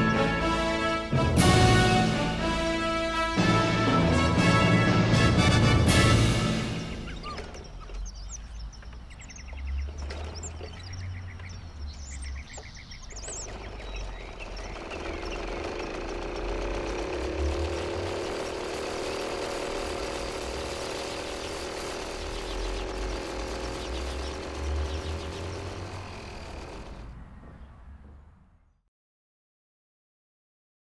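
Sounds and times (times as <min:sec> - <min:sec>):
loud steady noise: 0:00.0 - 0:07.5, 0:14.2 - 0:27.2
birds chirping: 0:00.0 - 0:28.8.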